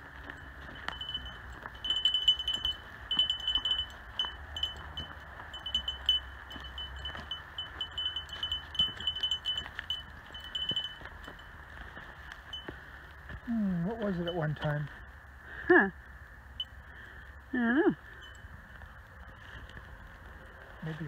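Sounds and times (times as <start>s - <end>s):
small bell jingling: 0.0s - 12.8s, 14.0s - 14.8s, 18.1s - 18.6s
footsteps on dry leaves: 0.0s - 15.0s, 18.6s - 21.0s.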